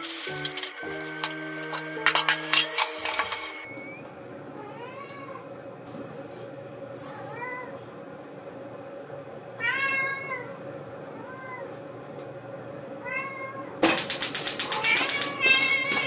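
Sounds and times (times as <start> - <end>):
cat meowing: 9.6 - 10.5, 11.2 - 11.7, 13.0 - 13.7, 14.7 - 16.0.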